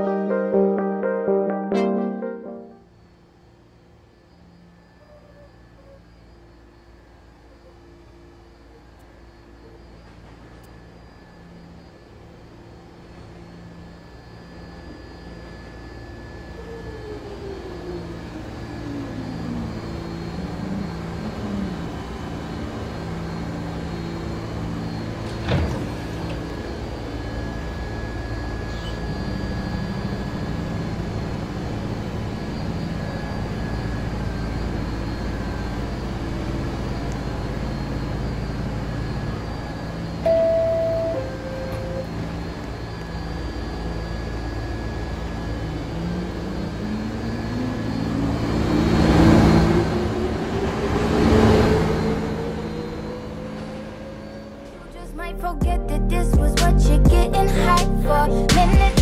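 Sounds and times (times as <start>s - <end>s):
subway train motor whine: 0.0s - 59.0s
steady mechanical hum: 2.5s - 59.0s
two-tone door chime: 40.2s - 42.2s.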